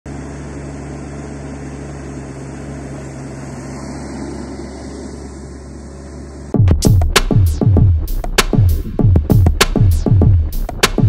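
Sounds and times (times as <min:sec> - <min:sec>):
excavator engine humming: 0:00.1 - 0:06.6.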